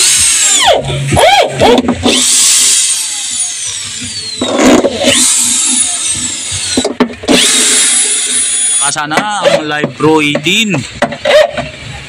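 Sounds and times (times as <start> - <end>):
power drill driving screws: 0.0 - 9.0.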